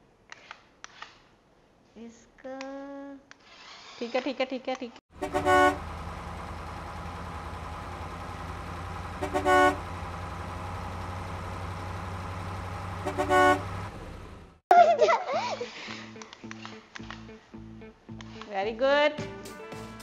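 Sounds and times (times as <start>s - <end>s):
car horn honking: 5.1s - 7.0s, 8.8s - 14.4s
vehicle engine rumble: 5.1s - 14.6s.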